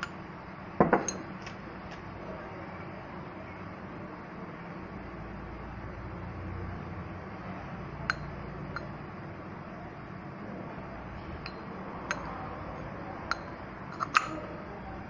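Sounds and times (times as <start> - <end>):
steady low hum: 0.0 - 15.0
light metallic clicks and clinks: 13.3 - 14.4.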